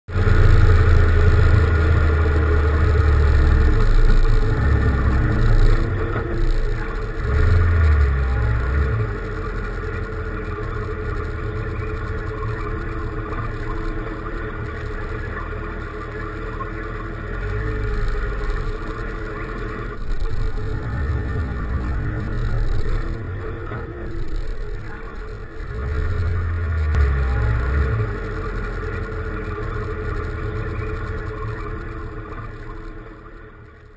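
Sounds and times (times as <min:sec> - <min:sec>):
motorcycle engine: 0:00.1 - 0:33.9.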